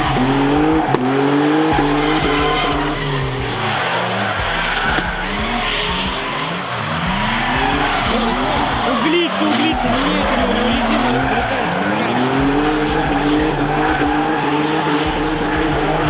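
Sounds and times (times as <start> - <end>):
car engines revving: 0.0 - 16.0.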